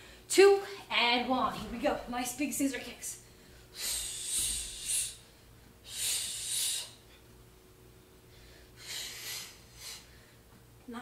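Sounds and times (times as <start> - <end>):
woman breathing hard: 3.2 - 7.3, 8.2 - 10.6.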